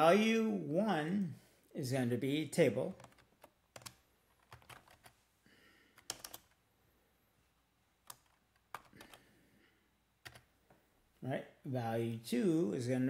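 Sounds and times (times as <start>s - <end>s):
faint keyboard typing: 2.9s - 5.2s, 5.8s - 6.6s, 8.0s - 9.4s, 10.2s - 10.8s.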